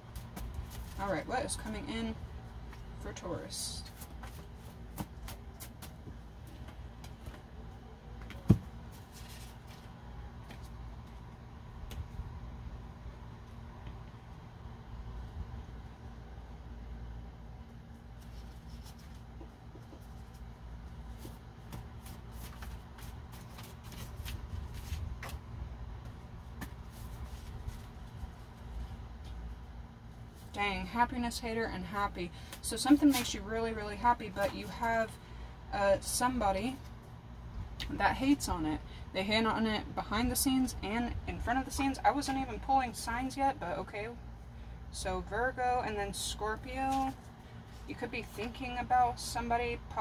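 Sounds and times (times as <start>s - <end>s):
low steady hum: 0.0s - 50.0s
cards being shuffled: 21.2s - 25.4s.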